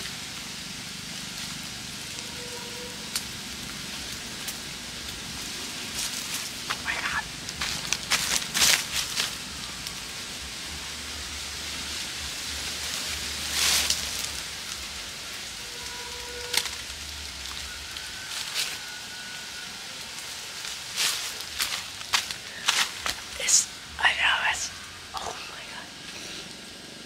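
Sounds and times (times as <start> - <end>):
sharp cracks of fire: 0.0 - 18.9
wood fire crackling: 0.0 - 27.0
faint thin whistle: 17.6 - 19.8.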